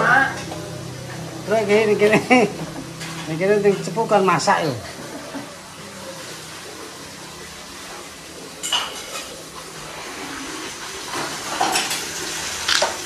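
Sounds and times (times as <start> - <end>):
metal dishes and pots clattering: 2.0 - 4.0, 8.5 - 9.8, 11.1 - 13.0.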